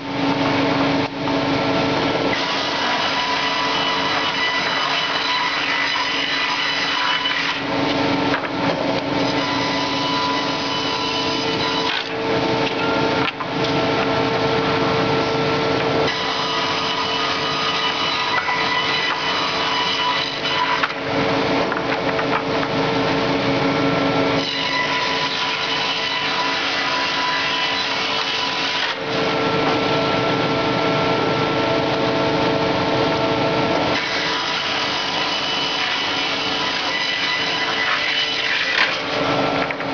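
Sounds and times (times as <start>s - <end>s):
machine whine: 6.9s - 39.9s
circular saw ripping boards: 16.0s - 22.7s, 33.9s - 39.9s.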